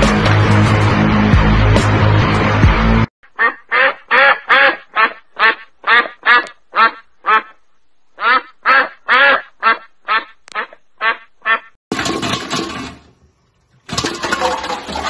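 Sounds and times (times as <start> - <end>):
duck quacking: 3.2 - 7.6, 8.2 - 11.8.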